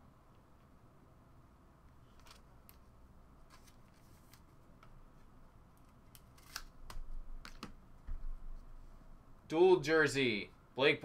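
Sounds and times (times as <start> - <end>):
trading cards clicking and rustling: 2.1 - 5.0, 5.8 - 7.8.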